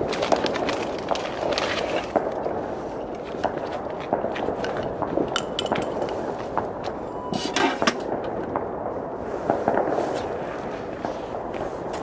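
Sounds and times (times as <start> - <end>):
distant fireworks crackling: 0.0 - 12.0
fireworks pops and bangs: 0.0 - 12.0.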